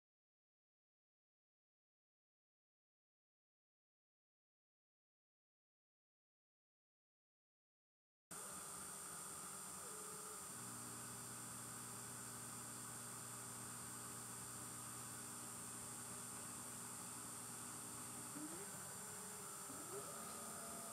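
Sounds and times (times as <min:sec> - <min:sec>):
milling machine motor hum: 0:08.3 - 0:20.9
motor whine rising: 0:09.8 - 0:20.9.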